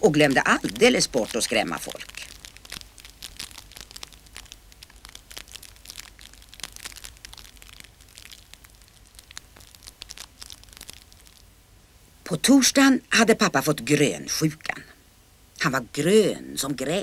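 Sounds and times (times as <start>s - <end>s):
fire crackling and popping: 0.0s - 11.8s.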